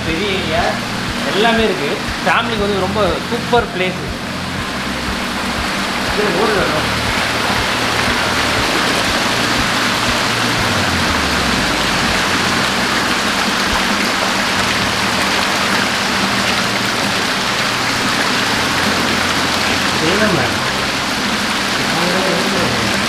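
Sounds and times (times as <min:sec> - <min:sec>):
water splashing into tanks: 0:00.0 - 0:23.0.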